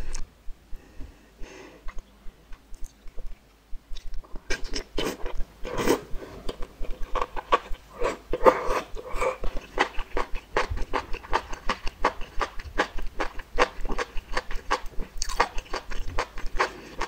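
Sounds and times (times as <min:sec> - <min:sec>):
wet chewing with mouth clicks: 0:01.9 - 0:17.0.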